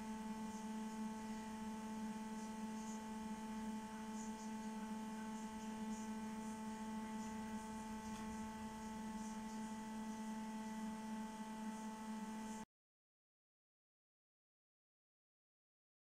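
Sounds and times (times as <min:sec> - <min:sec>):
steady electric hum: 0:00.0 - 0:12.7.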